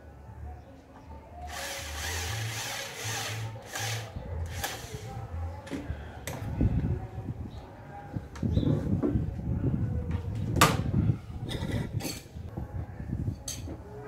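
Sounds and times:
electric drill into wood: 1.5s - 5.0s.

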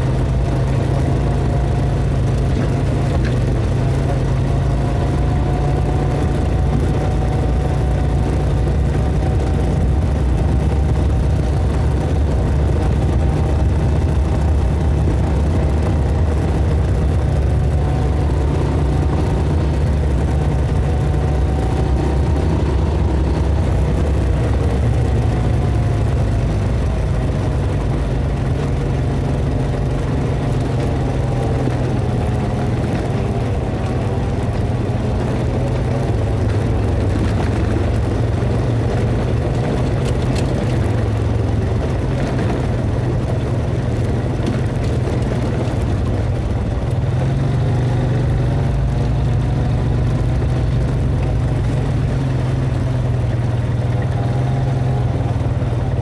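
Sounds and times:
atv engine rumbling: 0.0s - 56.0s
faint engine whine: 0.0s - 56.0s.

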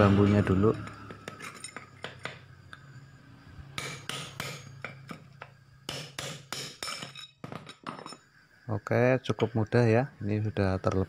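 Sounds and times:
hammer striking metal rod: 3.8s - 5.3s, 5.9s - 7.3s.

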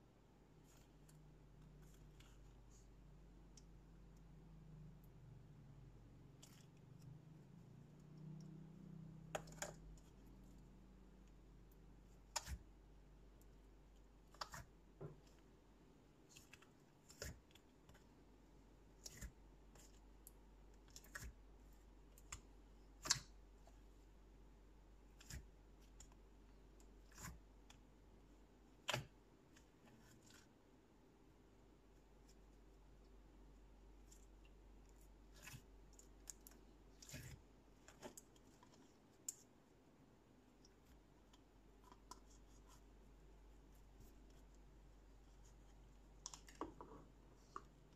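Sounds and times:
fingers squishing sticky slime: 6.2s - 15.6s, 16.2s - 23.8s, 25.1s - 27.8s, 28.7s - 30.5s, 34.0s - 39.5s.

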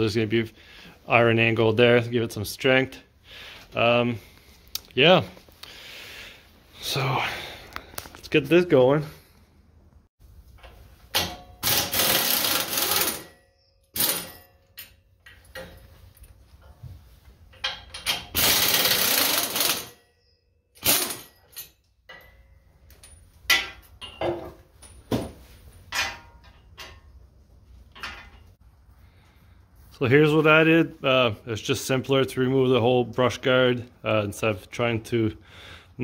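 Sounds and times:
pneumatic impact wrench bursts: 11.6s - 13.3s, 18.2s - 20.0s, 20.8s - 21.3s.

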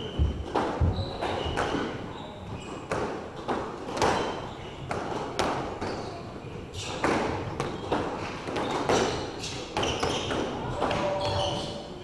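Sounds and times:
sneakers squeaking on wooden floor: 0.0s - 12.0s
squash ball smacking walls: 2.8s - 6.0s.

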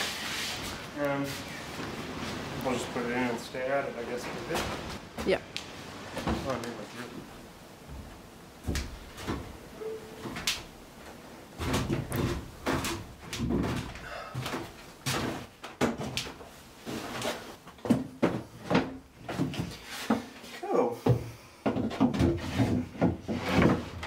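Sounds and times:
footsteps on wood: 7.8s - 9.6s.

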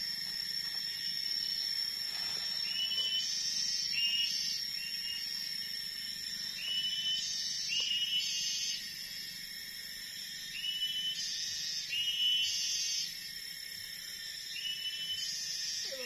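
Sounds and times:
high insect drone: 0.0s - 16.0s.

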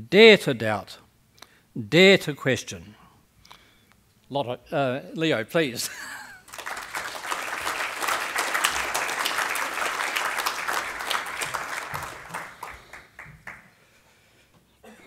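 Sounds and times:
audience applauding: 6.4s - 13.8s.

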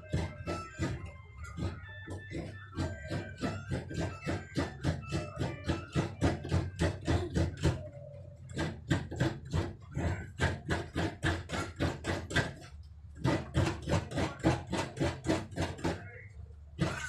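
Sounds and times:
coconut grating scraping strokes: 16.8s - 17.0s.

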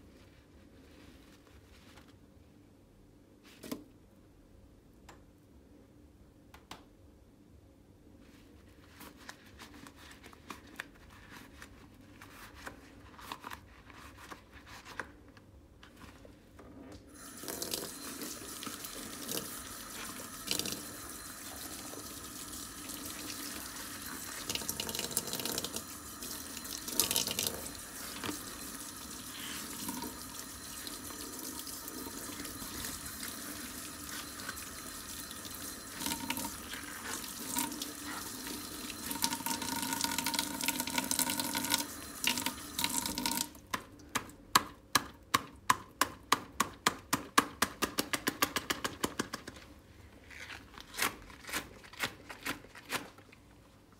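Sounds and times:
water running into steel sink: 17.2s - 43.6s
squelching soapy sponge: 18.0s - 24.8s, 26.2s - 39.2s.

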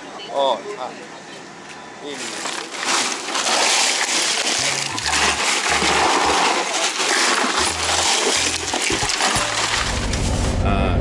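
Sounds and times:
ice cubes clattering: 2.1s - 10.3s
background music with bass: 7.6s - 11.0s.

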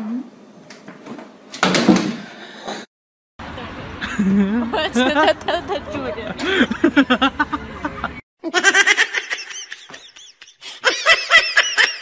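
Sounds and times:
people laughing: 4.0s - 12.0s.

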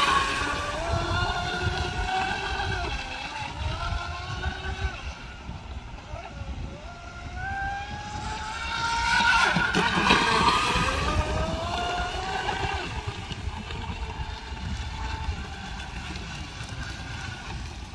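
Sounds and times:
electric motors whining: 0.0s - 17.9s.

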